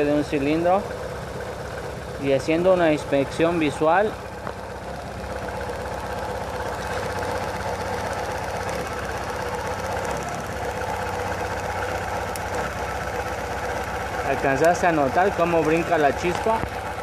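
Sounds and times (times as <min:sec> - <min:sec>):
engine idling with rapid ticking: 0:00.0 - 0:17.0.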